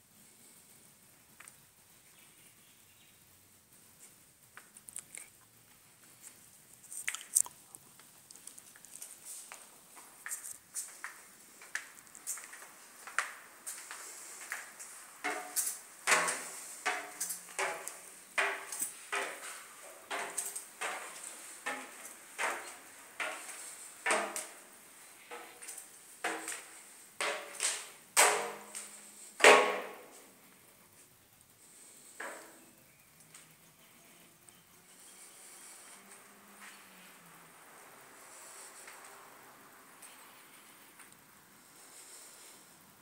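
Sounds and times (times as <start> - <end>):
footsteps and knocks: 8.9 - 30.3.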